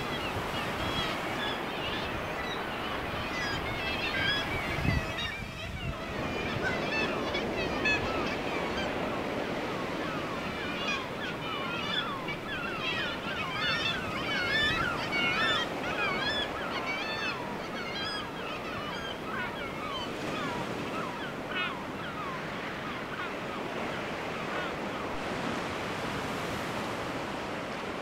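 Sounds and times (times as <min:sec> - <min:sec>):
surf rushing: 0:00.0 - 0:21.2
seabirds calling: 0:00.0 - 0:28.0
wind: 0:00.0 - 0:28.0.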